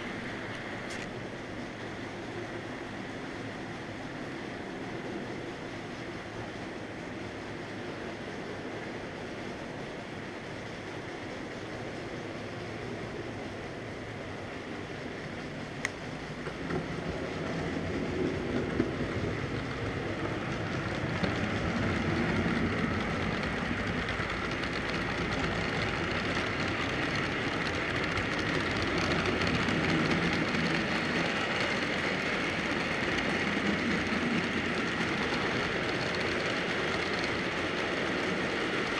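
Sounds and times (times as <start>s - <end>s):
model train wheels rattling on rails: 14.8s - 38.9s.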